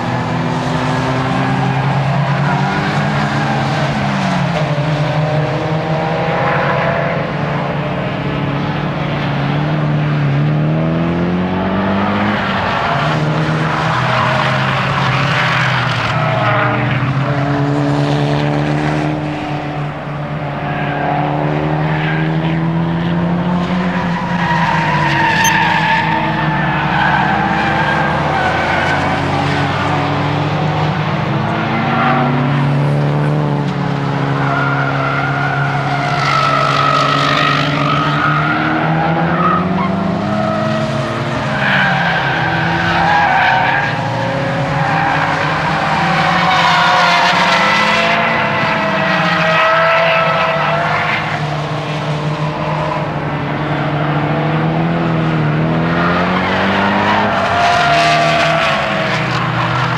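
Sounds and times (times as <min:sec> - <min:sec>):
car engine revving hard: 0:50.2 - 0:59.9.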